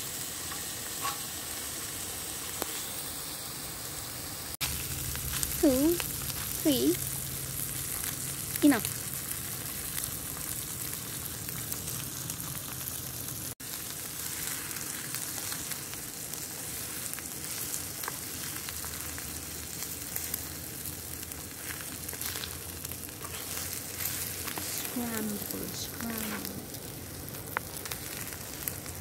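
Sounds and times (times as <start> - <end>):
eggs sizzling in a pan: 0.0 - 29.0.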